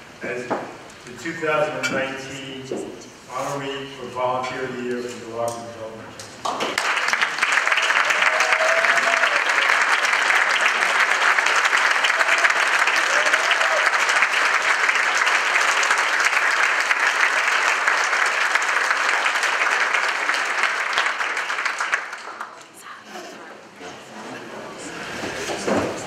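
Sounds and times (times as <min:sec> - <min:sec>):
audience applauding: 0:06.5 - 0:22.8.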